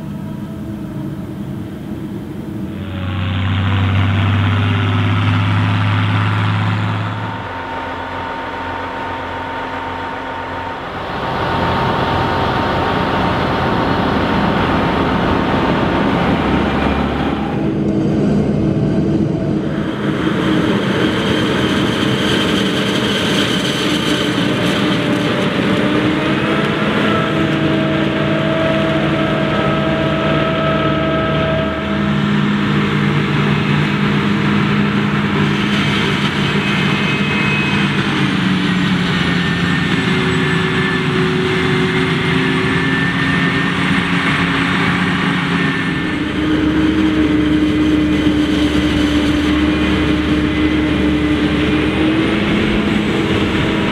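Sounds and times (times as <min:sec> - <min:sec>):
heavy engine drone: 0:00.0 - 0:53.9
high steady machine whines: 0:00.0 - 0:53.9.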